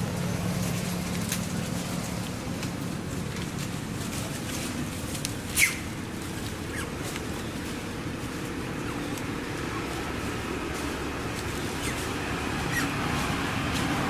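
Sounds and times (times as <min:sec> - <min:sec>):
steady low rumble: 0:00.0 - 0:14.0
high animal squeak: 0:05.5 - 0:07.1, 0:12.7 - 0:13.0.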